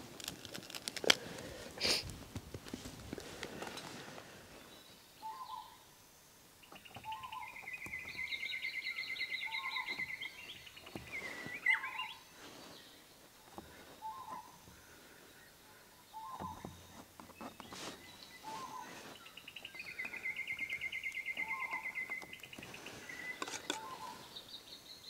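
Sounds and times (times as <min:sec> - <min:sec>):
bird trilling song: 0:04.6 - 0:05.9, 0:06.6 - 0:14.6, 0:15.2 - 0:25.0.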